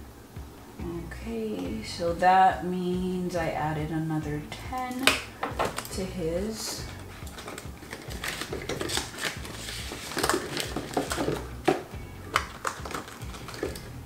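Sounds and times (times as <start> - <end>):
background music: 0.0 - 14.0
bills flicking: 4.5 - 14.0
paper money rustling: 5.6 - 14.0.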